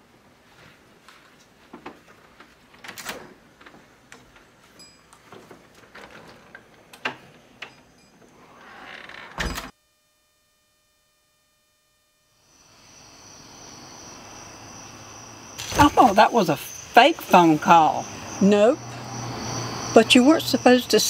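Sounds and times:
house door opening: 5.2s - 9.7s.

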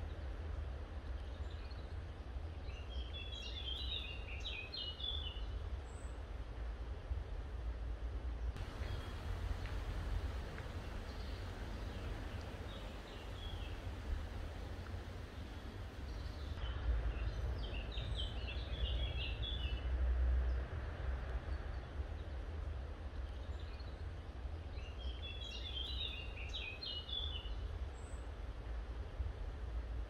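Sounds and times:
low rumble: 8.6s - 16.6s
songbird chirping: 8.6s - 19.8s.

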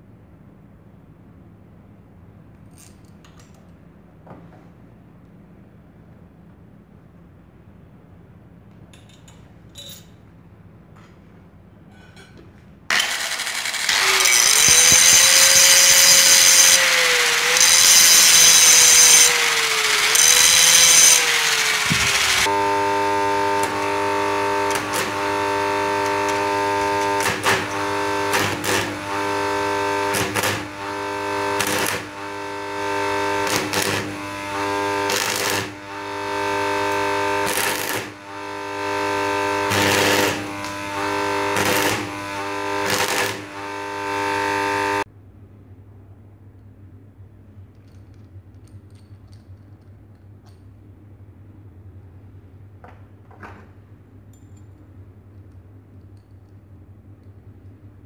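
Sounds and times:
welder humming: 12.9s - 45.1s
welding arc crackling hiss: 12.9s - 45.1s.

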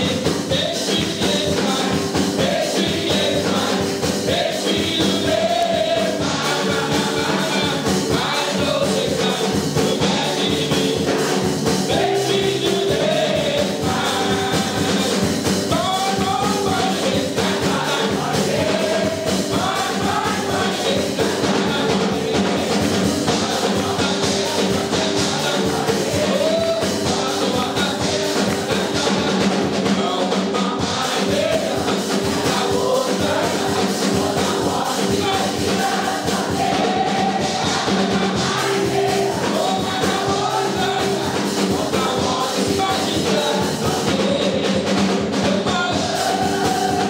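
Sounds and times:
drum kit beat: 0.0s - 47.0s
live band playing: 0.0s - 47.0s
men's group singing gospel: 0.0s - 47.0s.

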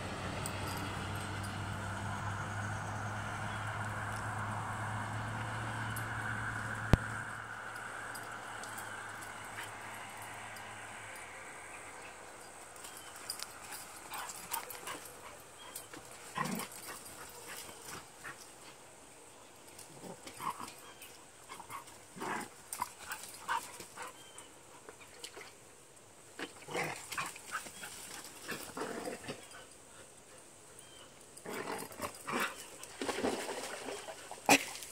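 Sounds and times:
dogs vocalising in play: 13.7s - 18.4s.

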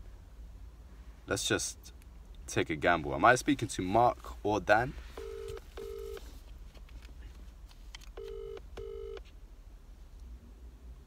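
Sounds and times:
telephone ringback tone: 5.2s - 6.2s, 8.2s - 9.2s.

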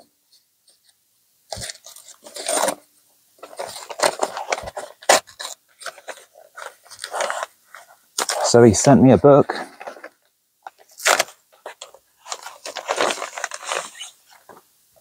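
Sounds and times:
paper envelope tearing: 1.5s - 2.8s, 3.4s - 8.6s, 10.8s - 14.6s.

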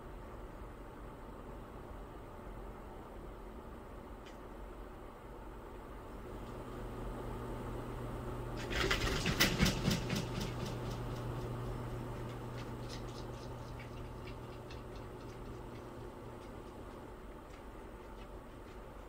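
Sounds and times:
faint steady hum: 0.0s - 19.0s
paws and claws clicking: 8.6s - 19.0s.

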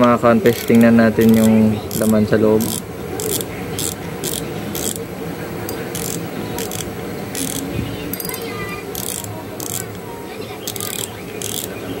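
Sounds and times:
fishing reel rasping clicks: 0.5s - 5.1s, 5.7s - 10.0s, 10.7s - 11.8s.

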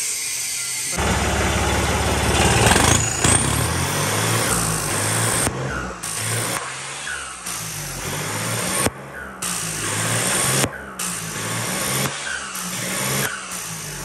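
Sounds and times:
high turbo whistle: 0.1s - 8.0s
tractor diesel engine revving: 0.9s - 14.0s.

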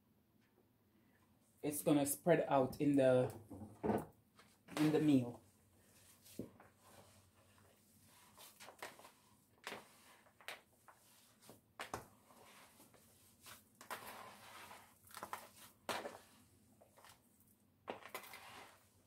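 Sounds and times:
mixture being mixed in a bowl: 6.0s - 19.0s.

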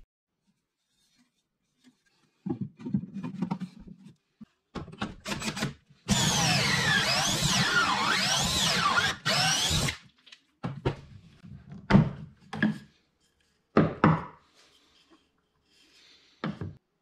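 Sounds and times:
cordless drill whining: 5.3s - 10.0s
wooden knocks and clunks: 13.7s - 14.4s.

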